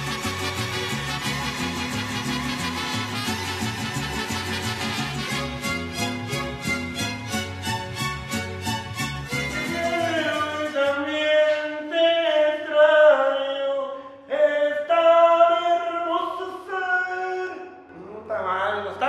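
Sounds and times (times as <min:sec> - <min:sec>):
man singing unaccompanied: 0:09.4 - 0:19.0.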